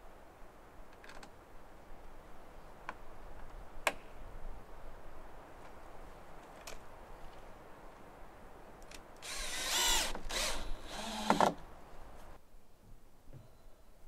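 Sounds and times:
cordless drill whine: 9.2 - 11.5.

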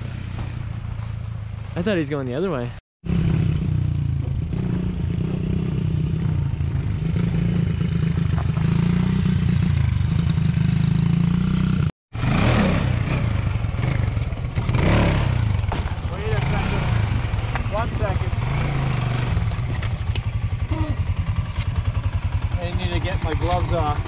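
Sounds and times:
quad engine revving: 3.1 - 24.0
small motorbike engine running: 12.2 - 24.0.

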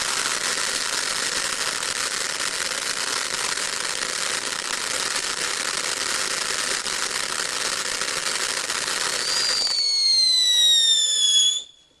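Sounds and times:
firework fountain hissing crackle: 0.0 - 12.0
firework whistle falling in pitch: 9.2 - 12.0.

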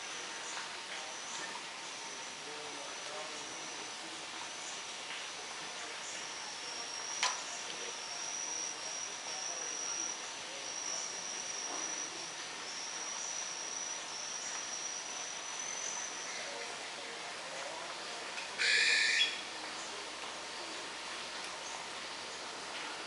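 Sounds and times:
background hiss: 0.0 - 23.0
high-pitched insect trill: 6.0 - 16.6, 18.6 - 19.5.

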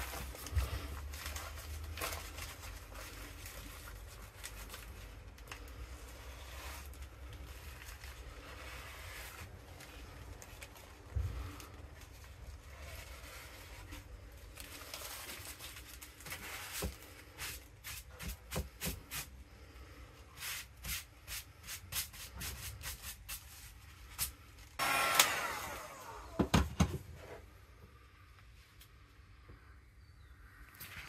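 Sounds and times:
plastic wrap crinkling: 0.0 - 18.5.

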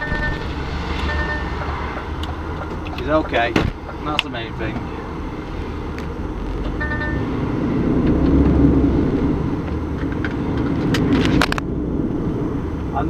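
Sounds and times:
short beep: 0.0 - 1.6, 6.8 - 7.3
diesel engine and road noise: 0.0 - 13.0.

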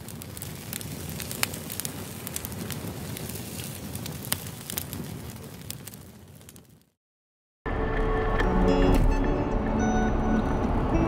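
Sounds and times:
crackling hiss: 0.0 - 7.0.

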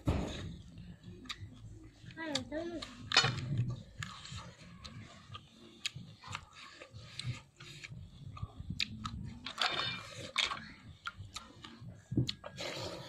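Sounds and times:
person chewing: 0.3 - 13.0
wet mouth clicks: 4.9 - 9.4, 10.3 - 12.9.

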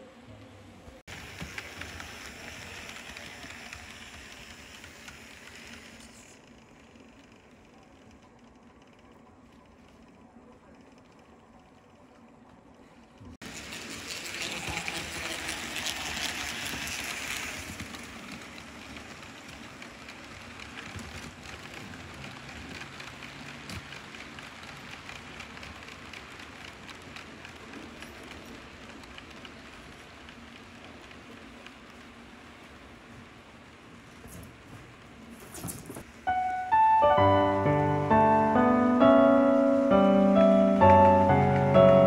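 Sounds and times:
model train rolling on track: 0.0 - 42.0.

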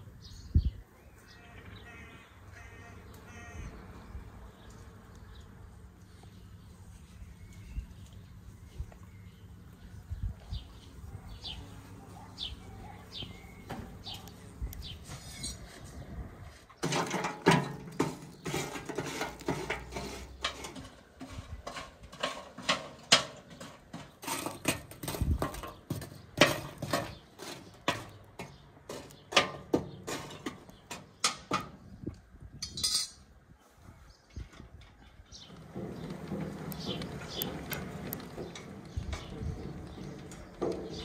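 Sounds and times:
charcoal clinking against metal: 16.8 - 25.8, 32.6 - 33.2.

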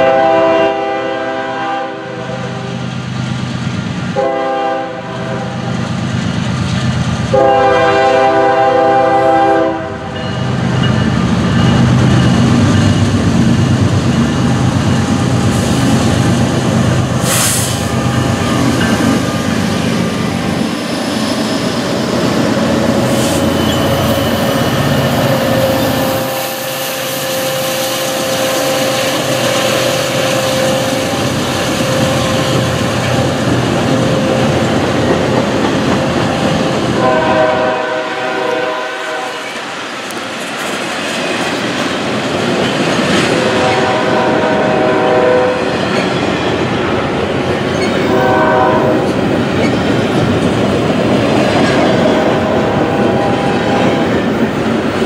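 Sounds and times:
multi-note train air horn: 0.0 - 2.7, 4.2 - 5.7, 7.3 - 10.1, 37.0 - 39.5, 43.4 - 45.7, 48.1 - 49.1, 52.1 - 54.1
freight train rumbling past: 0.0 - 55.0
wheels clacking over rail joints: 17.9 - 26.2.

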